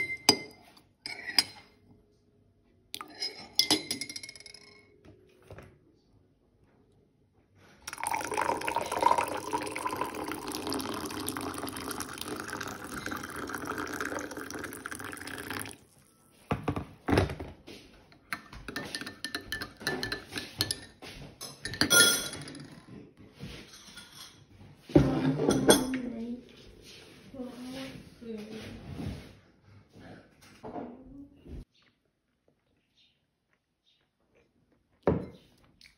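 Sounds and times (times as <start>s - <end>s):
metal spoon clinking on glass: 3.0s - 5.0s, 18.4s - 20.9s, 21.5s - 22.7s
water pouring into a glass: 7.8s - 16.1s.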